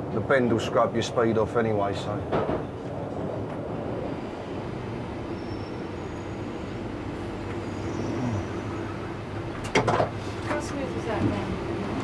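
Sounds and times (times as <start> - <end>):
train running rumble: 2.0 - 12.0.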